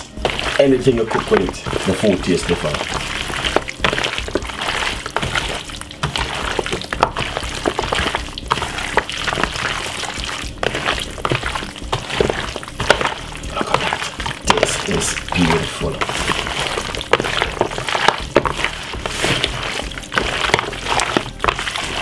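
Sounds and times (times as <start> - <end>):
meat squelching in a plastic bowl: 0.0 - 22.0.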